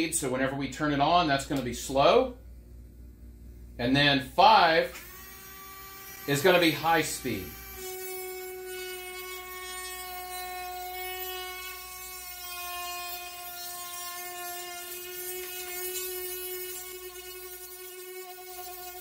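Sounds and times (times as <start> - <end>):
rotary tool grinding whine: 4.2 - 19.0.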